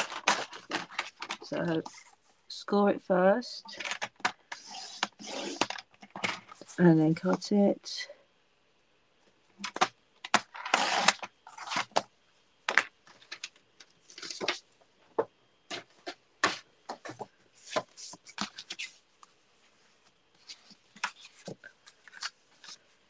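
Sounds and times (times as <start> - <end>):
trimmer blade scratching card: 4.6 - 5.7, 10.6 - 11.9.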